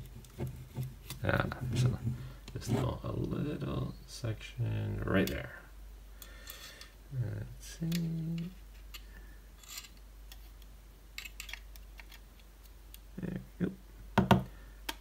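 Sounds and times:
metal tweezers clicking and scraping: 7.9 - 12.5.

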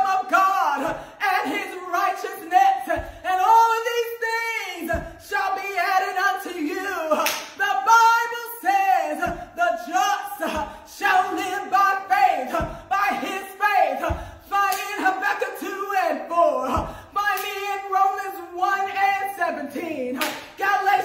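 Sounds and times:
woman singing gospel: 0.0 - 21.0
hand claps: 7.2 - 7.6, 14.7 - 14.9, 17.4 - 17.6, 20.2 - 20.6.

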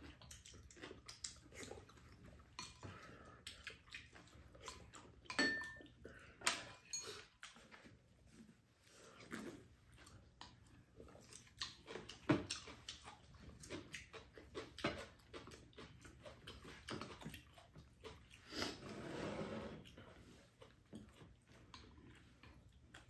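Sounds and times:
chewing and slurping soup: 0.0 - 23.0
utensils clicking on ceramic bowls: 5.3 - 5.8.

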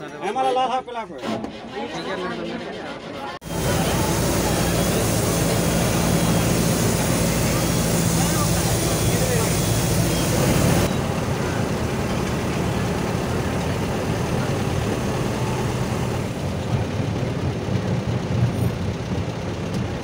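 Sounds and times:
bus engine drone: 3.3 - 20.0
road noise hiss: 3.4 - 20.0.

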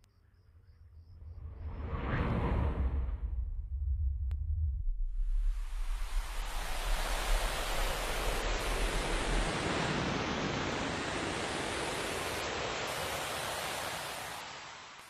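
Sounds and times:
low rumble: 1.0 - 9.5
rushing hiss: 5.4 - 15.0.

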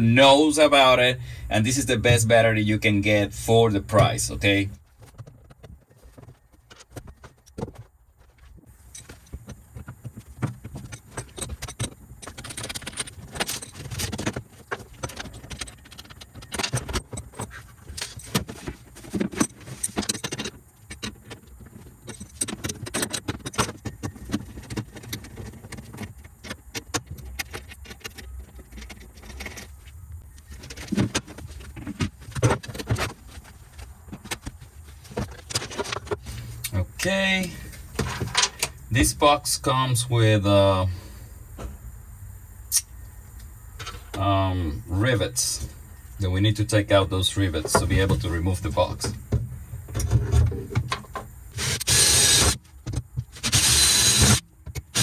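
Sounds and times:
hand tools clinking and rattling: 5.0 - 29.8.

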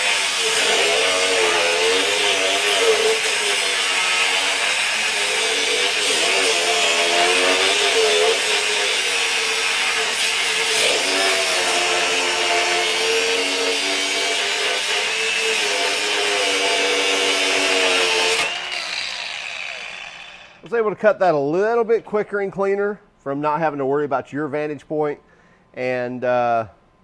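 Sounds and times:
angle grinder cutting steel: 0.0 - 20.7.

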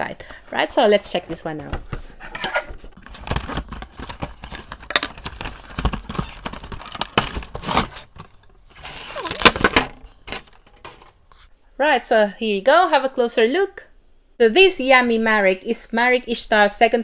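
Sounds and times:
cardboard and plastic crinkling: 0.5 - 11.2.

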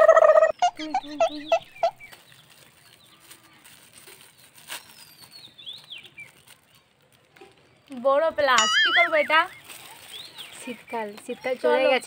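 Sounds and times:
chicken calling: 0.0 - 2.0, 8.6 - 9.4
chicken clucking: 0.0 - 2.1
faint crinkles: 1.6 - 12.0.

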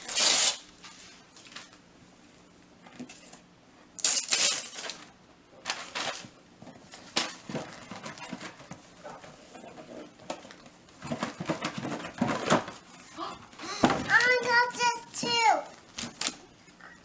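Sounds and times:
gift wrap rustling and tearing: 0.0 - 1.8, 4.0 - 6.3.

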